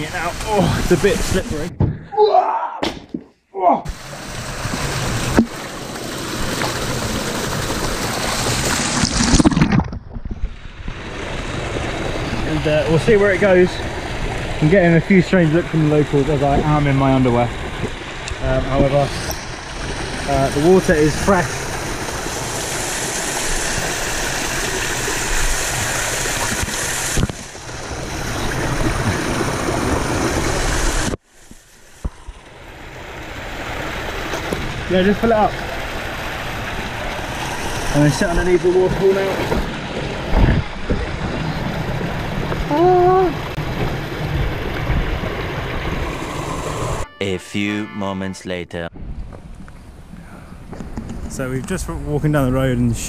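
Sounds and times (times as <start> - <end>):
waterfall splashing over rocks: 3.9 - 9.7, 10.7 - 47.0.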